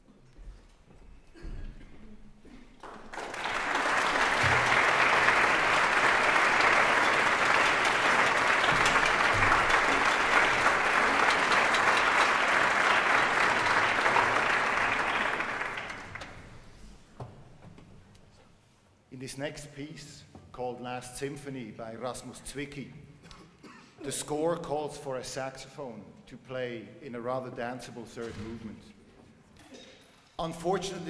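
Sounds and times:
audience applauding: 2.8 - 16.8.

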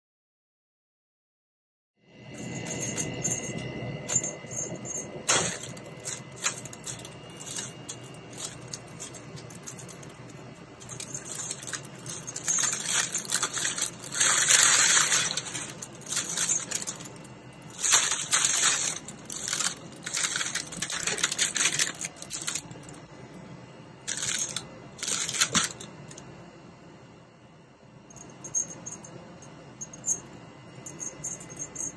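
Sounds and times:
crinkly rustling: 2.7 - 23.1, 24.1 - 26.2.

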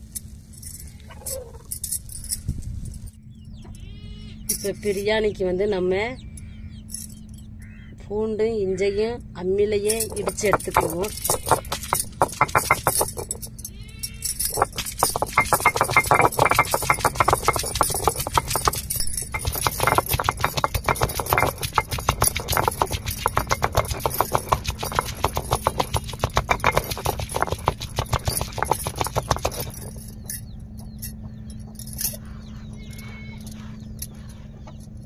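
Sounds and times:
stone roller knocking on stone slab: 9.9 - 13.6, 14.2 - 32.0.

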